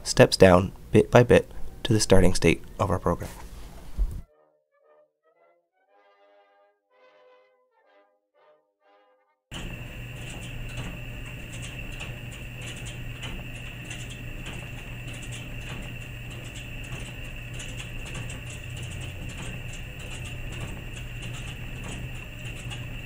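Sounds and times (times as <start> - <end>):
clothes dryer motor hum: 0.0 - 4.2, 9.5 - 23.0
light irregular clicks: 9.5 - 23.0
thin high whine: 9.5 - 23.0.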